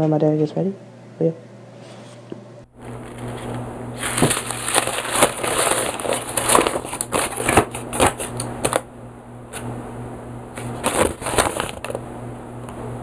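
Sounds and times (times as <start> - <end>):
steady low hum: 0.0 - 13.0
paper crinkling: 2.9 - 8.8, 10.6 - 12.0.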